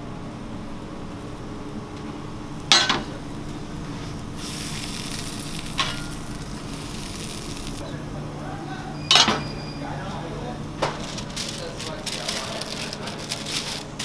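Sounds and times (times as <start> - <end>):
kitchen hum: 0.0 - 14.0
metal clank: 2.7 - 3.2, 9.0 - 9.6
food sizzling on griddle: 4.4 - 7.8.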